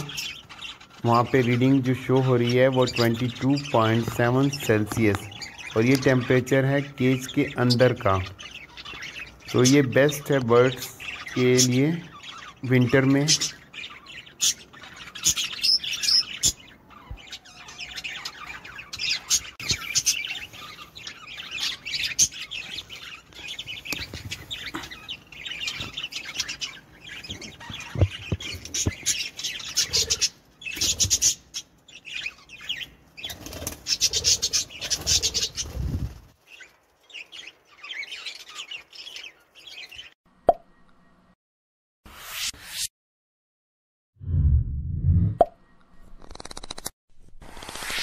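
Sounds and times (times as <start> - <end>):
budgerigars chirping: 0.0 - 40.1
wings fluttering: 33.2 - 37.5, 46.0 - 48.0.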